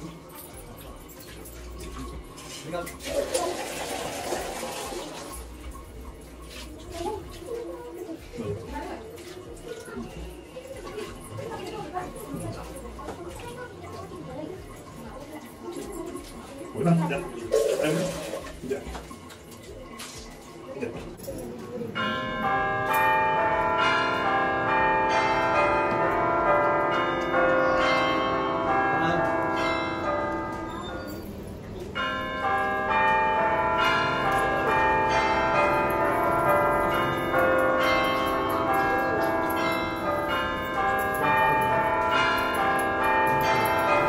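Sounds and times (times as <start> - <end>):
bells ringing: 21.2 - 44.0.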